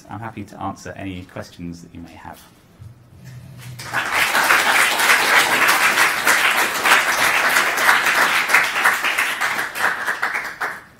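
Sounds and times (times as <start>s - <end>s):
audience applauding: 3.5s - 10.9s.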